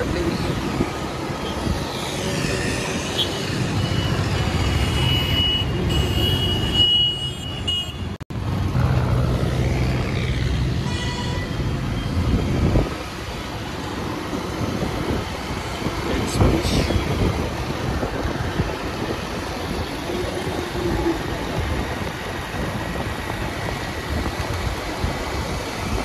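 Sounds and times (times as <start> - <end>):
road noise: 0.0 - 26.0
car horn: 4.7 - 8.2, 10.8 - 11.7.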